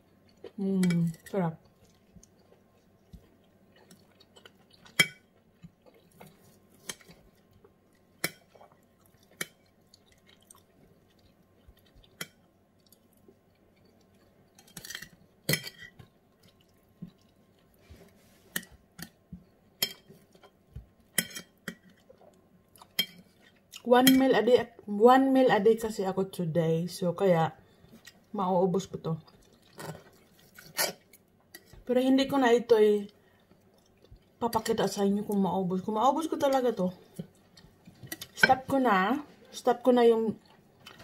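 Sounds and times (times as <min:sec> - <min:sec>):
chewing food: 0:00.0 - 0:23.9, 0:29.1 - 0:31.9, 0:33.1 - 0:34.7.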